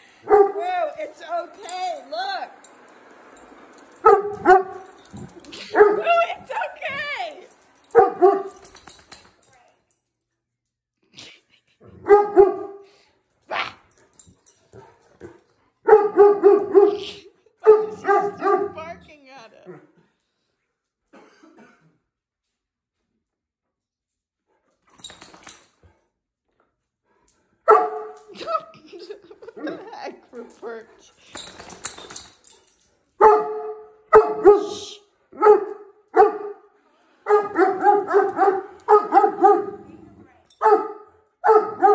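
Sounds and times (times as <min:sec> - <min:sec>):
dog barking: 0:00.2 - 0:00.8, 0:04.0 - 0:04.9, 0:05.6 - 0:06.1, 0:07.9 - 0:08.6, 0:12.0 - 0:12.8, 0:15.8 - 0:18.8, 0:27.7 - 0:28.2, 0:33.2 - 0:36.7, 0:37.3 - 0:40.0, 0:40.6 - 0:41.9.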